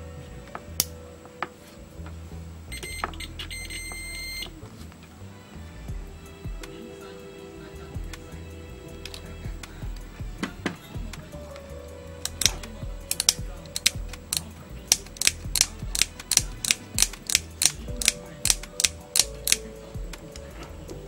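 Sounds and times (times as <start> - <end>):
sharp clicks handling circuit board: 12.3 - 19.7.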